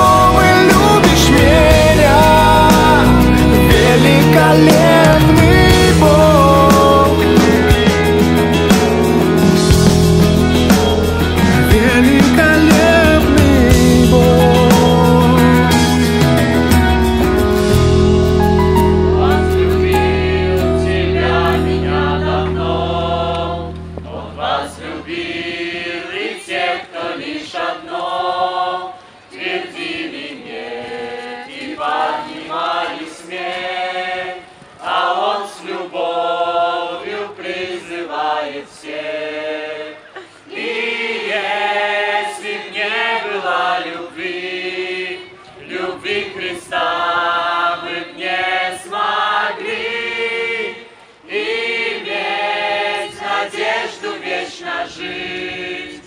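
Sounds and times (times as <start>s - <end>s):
choir singing: 0.0s - 17.0s, 17.6s - 56.0s
low instrumental bass: 0.0s - 25.8s.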